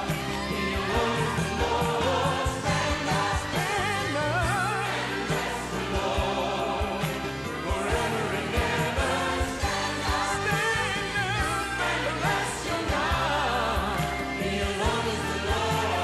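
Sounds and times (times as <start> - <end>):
group of voices singing: 0.0 - 16.0.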